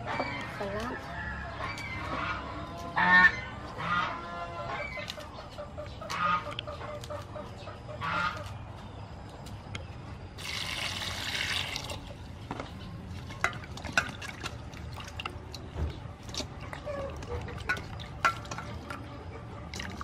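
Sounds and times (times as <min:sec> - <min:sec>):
domestic fowl calling: 0:00.0 - 0:08.6
water poured into steel bowl: 0:10.4 - 0:12.1.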